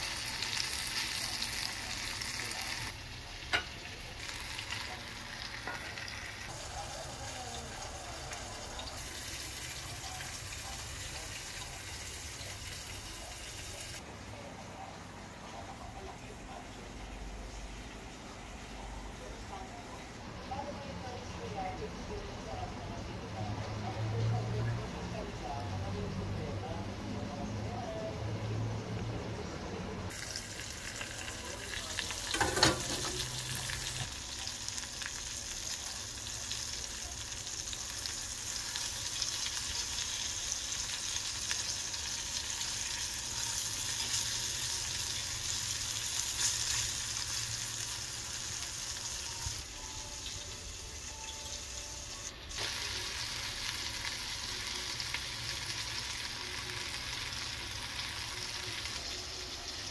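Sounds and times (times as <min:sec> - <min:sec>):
shrimp frying in oil: 0:00.0 - 0:14.0, 0:30.1 - 0:59.9.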